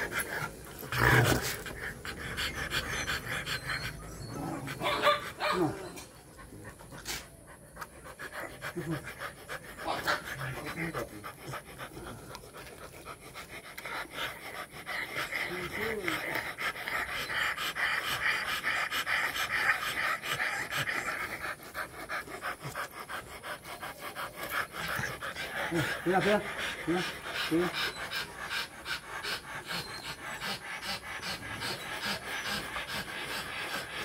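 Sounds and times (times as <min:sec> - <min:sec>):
dogs panting heavily: 0:00.0 - 0:34.0.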